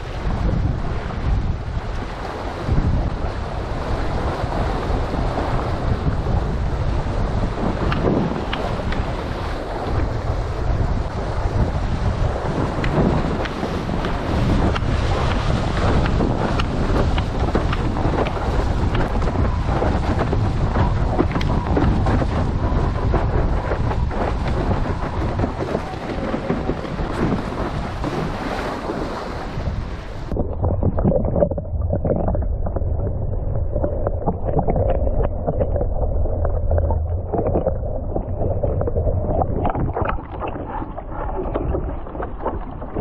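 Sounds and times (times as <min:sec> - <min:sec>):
wind buffeting microphone: 0:00.0 - 0:43.0
water sloshing: 0:12.3 - 0:43.0.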